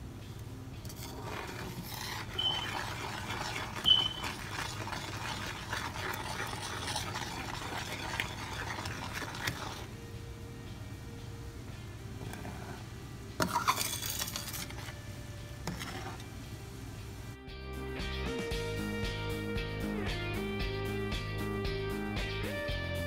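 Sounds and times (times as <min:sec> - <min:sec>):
metal spoon scraping metal pan: 0:00.8 - 0:09.9, 0:13.4 - 0:15.0, 0:15.6 - 0:16.3
sauce bubbling: 0:01.2 - 0:09.9.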